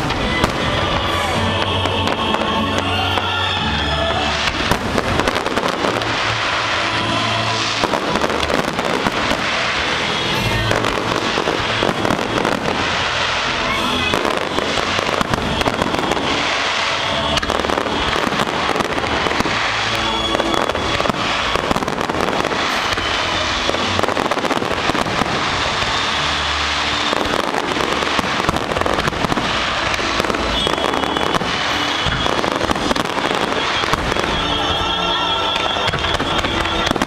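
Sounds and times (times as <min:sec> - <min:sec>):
fireworks bangs and crackles: 0:00.0 - 0:37.0.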